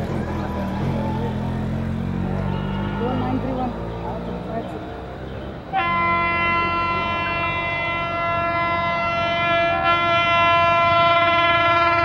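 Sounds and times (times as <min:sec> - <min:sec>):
locomotive air horn: 0:02.4 - 0:03.4, 0:05.7 - 0:12.0.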